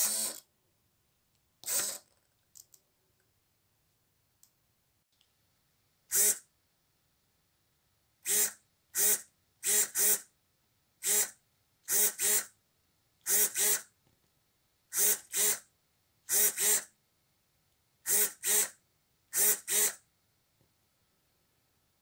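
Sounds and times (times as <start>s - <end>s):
servo motor buzzing: 0.0s - 0.4s, 1.6s - 2.1s, 8.3s - 10.2s, 11.0s - 12.5s, 13.3s - 13.9s, 15.0s - 15.6s, 16.3s - 16.9s, 18.1s - 18.7s, 19.4s - 20.0s.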